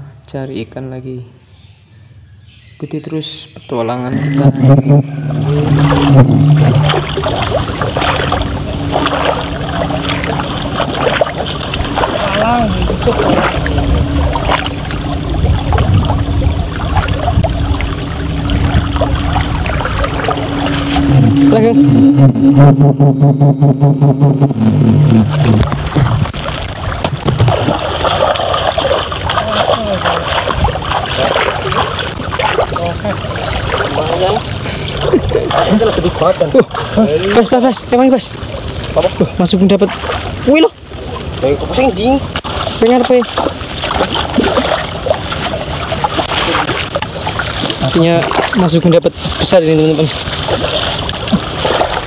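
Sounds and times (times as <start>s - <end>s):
low pulsing hum: 3.9s - 52.0s
feet wading in sloshing water: 5.3s - 21.7s, 25.4s - 52.0s.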